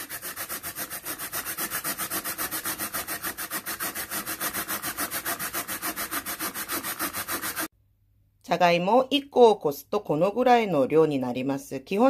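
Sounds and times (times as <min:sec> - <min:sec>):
potato grating rasps: 0:00.0 - 0:07.7.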